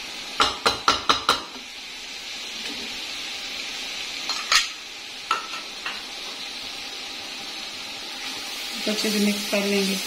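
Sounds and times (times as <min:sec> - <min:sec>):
masala sizzling in a pot: 0:00.0 - 0:10.0
metal spoon knocking on pot: 0:00.4 - 0:01.6.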